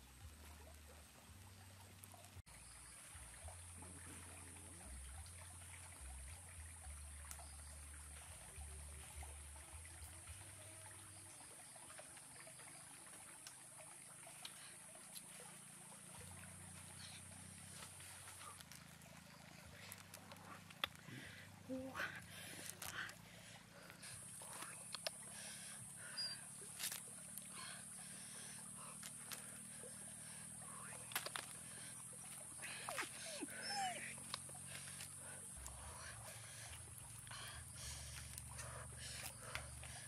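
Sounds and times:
campfire crackling: 16.1s - 21.6s, 30.2s - 40.0s.

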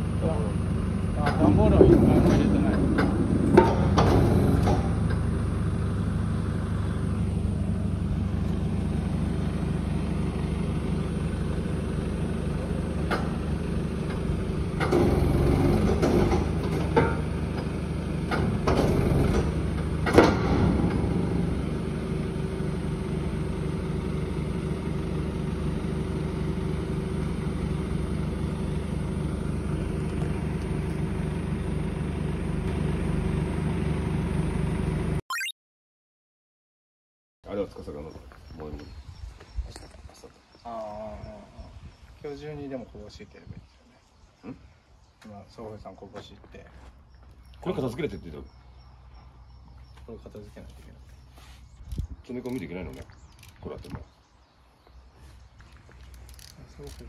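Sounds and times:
truck engine idling: 0.0s - 18.3s.

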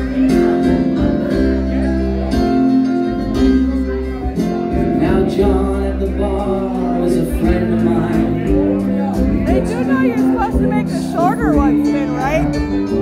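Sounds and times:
guitar: 0.0s - 13.0s
loud music with bass: 0.0s - 13.0s
person singing: 4.3s - 13.0s.

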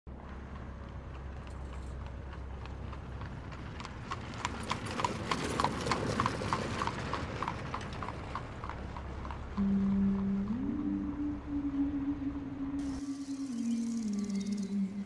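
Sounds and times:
horse hooves clip-clopping: 0.1s - 9.9s.

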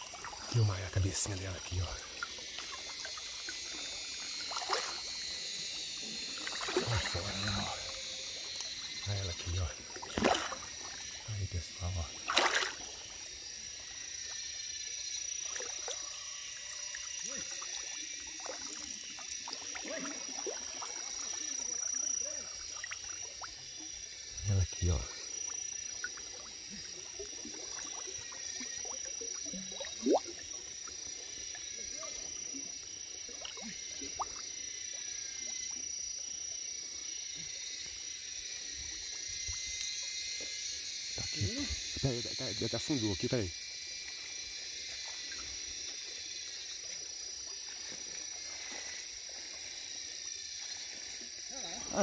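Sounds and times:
high insect drone: 0.0s - 52.0s
small water plops: 1.9s - 5.2s, 6.3s - 11.2s, 12.0s - 13.4s, 15.4s - 16.0s, 16.9s - 23.8s, 25.5s - 31.6s, 32.5s - 35.0s.

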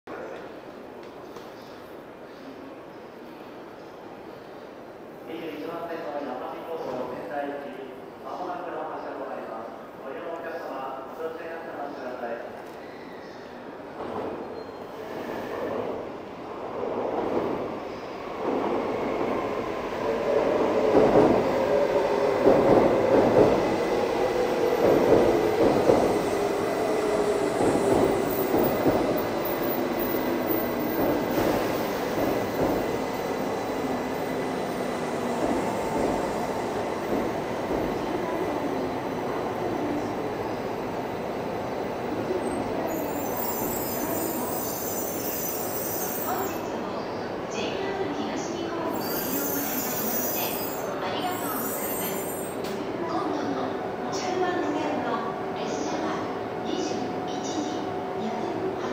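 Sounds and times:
train wheels on rails: 16.7s - 40.4s.

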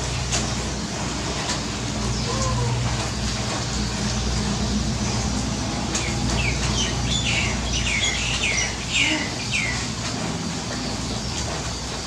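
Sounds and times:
rain pattering on water: 0.0s - 12.0s
bird chirping: 6.0s - 9.9s.

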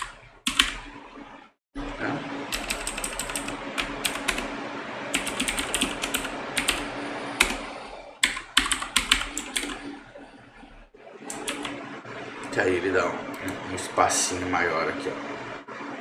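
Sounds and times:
keyboard typing clicks: 0.0s - 0.8s, 2.5s - 4.4s, 5.2s - 7.6s, 8.2s - 9.8s, 11.3s - 11.8s.

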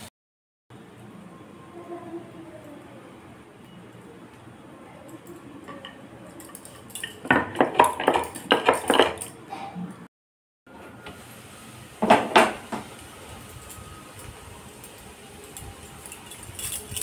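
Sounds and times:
glass bangles jingling: 5.3s - 9.4s, 13.6s - 17.0s.

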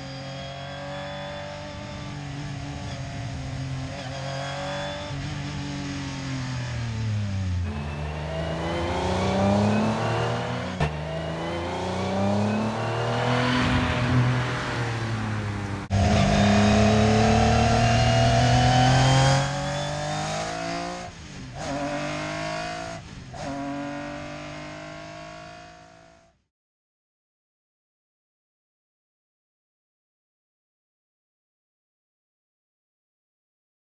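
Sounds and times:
rally car engine at full throttle: 0.0s - 26.4s.

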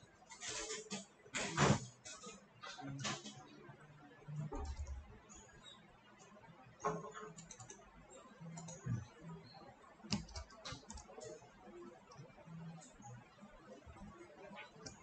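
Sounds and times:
keyboard keystrokes: 10.1s - 11.1s.

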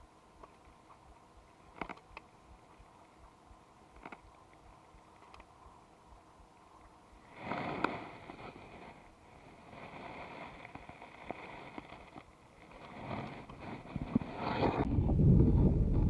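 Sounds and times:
rustling and handling noise: 6.6s - 14.9s.

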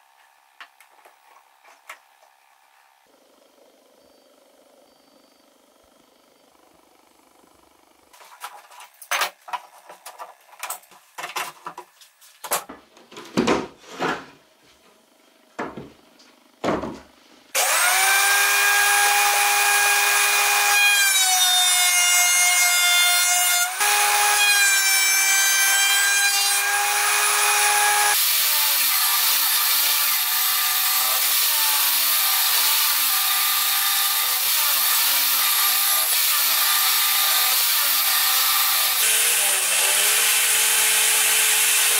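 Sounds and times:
table saw ripping wood: 17.6s - 41.9s
thickness planer whining: 17.6s - 41.9s.

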